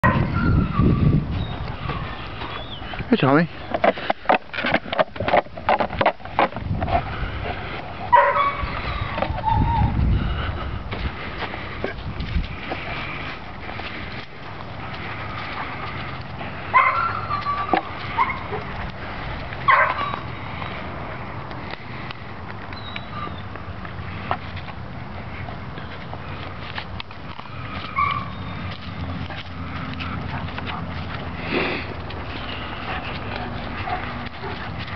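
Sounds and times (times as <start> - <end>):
dog yelp: 0.0 - 2.8, 8.1 - 10.0, 16.7 - 18.7, 19.7 - 20.2, 27.9 - 28.7
steady low rumble: 0.0 - 16.8, 23.4 - 34.9
rustling in dry grass: 0.2 - 34.9
low microphone rumble: 6.6 - 15.8
dog sniffing in dry grass: 23.1 - 34.9.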